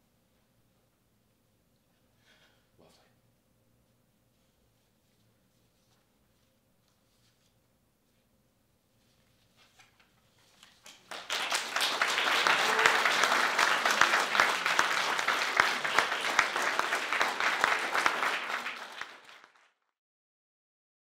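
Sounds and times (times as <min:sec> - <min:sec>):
audience applauding: 0:10.9 - 0:19.8.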